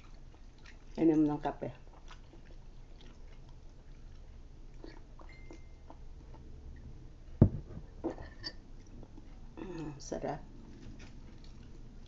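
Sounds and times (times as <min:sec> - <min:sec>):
mug knocking on table: 0:07.4 - 0:07.9.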